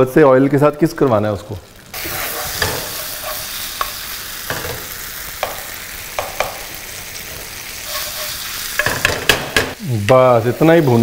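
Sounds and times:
paste sizzling in oil: 0:01.2 - 0:11.0
wooden spatula scraping a pan: 0:02.0 - 0:04.9, 0:07.2 - 0:09.2.

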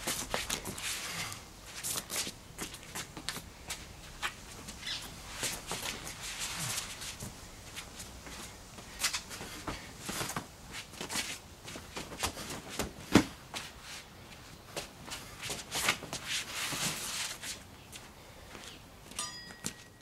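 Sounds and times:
shoes scuffing on stone paving: 0:00.0 - 0:19.9
clothing and bat swishing: 0:03.8 - 0:12.8.

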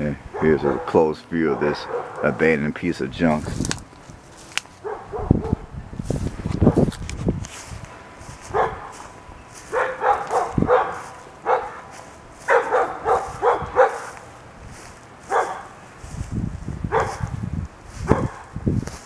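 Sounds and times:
dog barking: 0:00.4 - 0:02.4, 0:04.8 - 0:05.7, 0:08.5 - 0:09.0, 0:09.7 - 0:14.2, 0:15.3 - 0:15.8, 0:16.9 - 0:17.3, 0:18.1 - 0:18.5.

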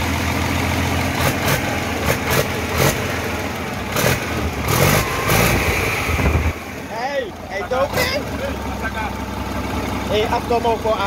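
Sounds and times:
diesel engine running unevenly: 0:00.0 - 0:11.0
sharp loud engine bursts: 0:03.9 - 0:07.0.

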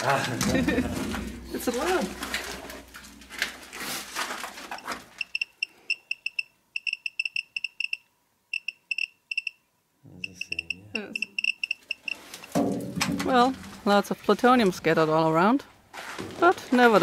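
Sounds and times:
hand rustling and scraping debris: 0:00.0 - 0:05.2
geiger counter beeps: 0:05.2 - 0:09.6, 0:10.2 - 0:12.2.

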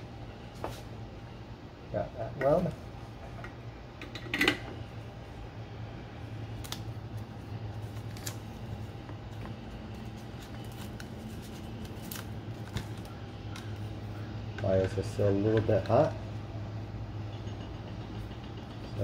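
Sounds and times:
steady low hum: 0:00.0 - 0:19.0
tape peeling and crinkling: 0:06.4 - 0:14.2.

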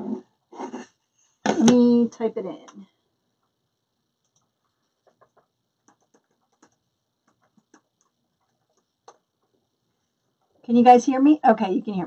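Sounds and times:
light typing clicks: 0:04.2 - 0:09.2.

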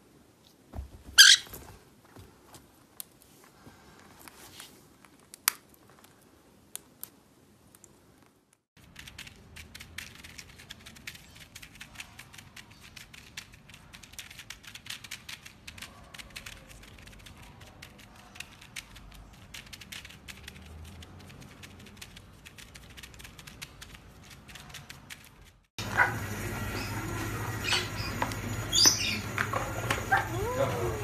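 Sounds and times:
rapid clicking and tapping: 0:08.8 - 0:25.7.

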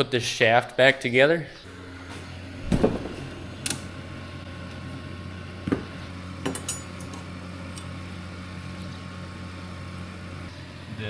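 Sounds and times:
steady low hum: 0:00.0 - 0:11.0
metal parts clinking: 0:06.4 - 0:07.9.

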